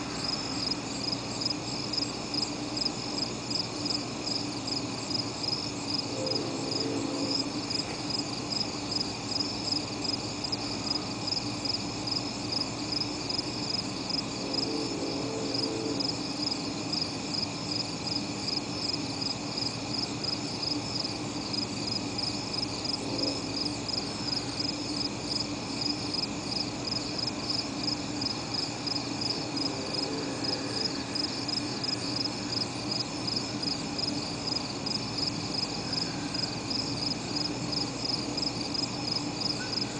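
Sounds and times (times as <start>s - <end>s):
low steady hum: 0.0s - 39.9s
pulsing chorus of night insects: 0.0s - 39.9s.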